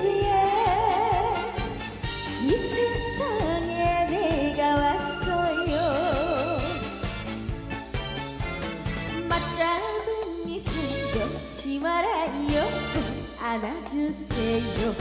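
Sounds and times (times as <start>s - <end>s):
woman singing with vibrato: 0.0s - 1.8s, 2.4s - 7.0s, 9.1s - 15.0s
backing music with steady beat: 0.0s - 15.0s.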